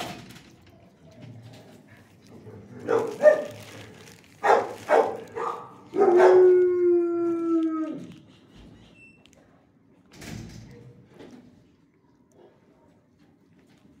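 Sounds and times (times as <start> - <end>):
dog barking: 2.6 - 3.7, 4.4 - 6.5
dog howling: 4.4 - 8.3.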